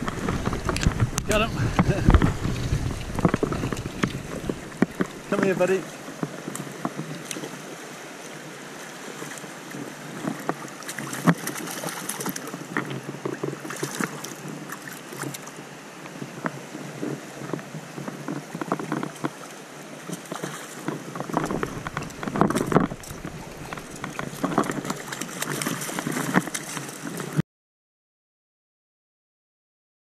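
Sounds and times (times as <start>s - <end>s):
wading boots splashing: 0.0s - 7.6s, 8.8s - 15.6s, 18.0s - 27.4s
stream rushing over boulders: 0.0s - 27.4s.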